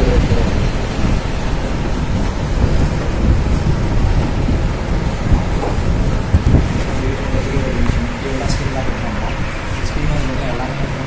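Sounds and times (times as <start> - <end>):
low rumbling noise: 0.0 - 11.0.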